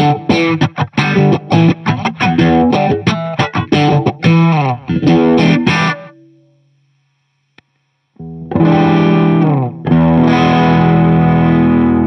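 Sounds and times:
electric guitar chords with phaser: 0.0s - 6.6s, 8.2s - 12.0s
faint click: 7.5s - 7.9s.

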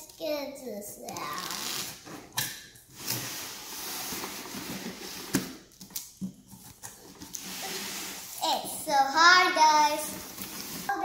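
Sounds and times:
cardboard packaging scraping and rustling: 2.9s - 5.7s, 6.4s - 8.4s, 10.1s - 11.0s.

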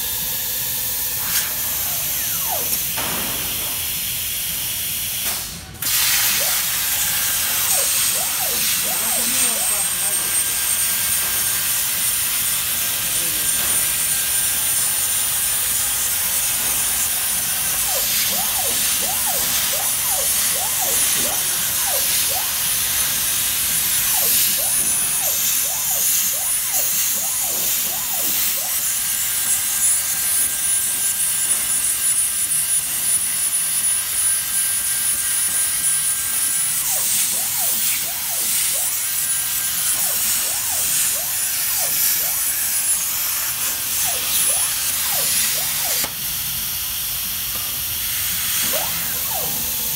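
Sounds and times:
plasma arc hissing: 1.0s - 10.6s, 16.0s - 29.9s, 36.6s - 46.5s.

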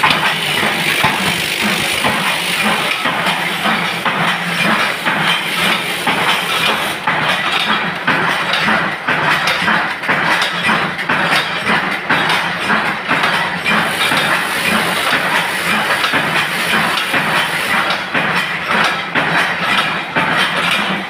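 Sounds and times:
machine drone: 0.0s - 8.2s
rapid clatter of metal impacts: 0.0s - 21.0s.

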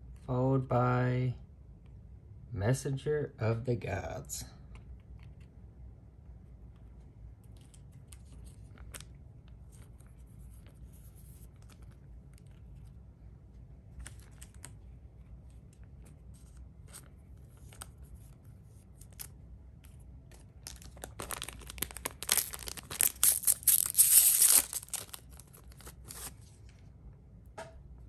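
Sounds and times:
trading cards rustling and clicking: 7.4s - 13.0s, 13.8s - 26.6s
foil wrapper tearing open: 20.6s - 26.4s.

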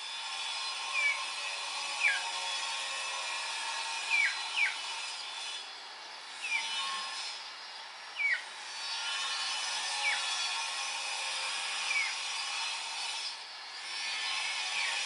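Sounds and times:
bird chirps sliding downward: 4.1s - 4.7s, 8.2s - 8.4s.

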